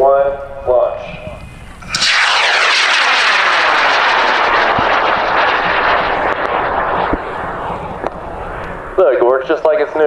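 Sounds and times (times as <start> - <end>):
rocket motor roaring: 1.8 - 9.0.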